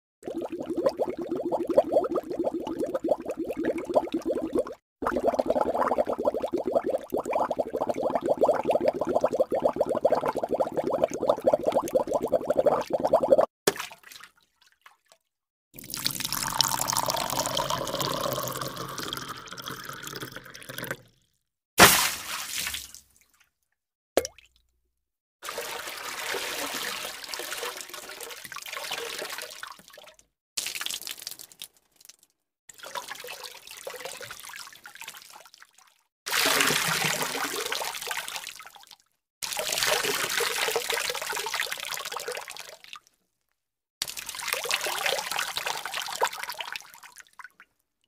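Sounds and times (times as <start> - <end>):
running water splashing: 21.8 - 23.0.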